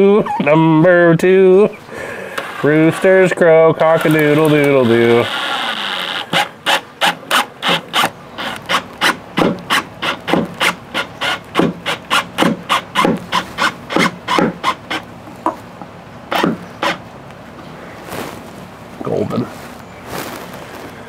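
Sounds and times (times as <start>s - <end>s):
drill driving a screw: 3.8s - 15.0s, 16.3s - 17.0s.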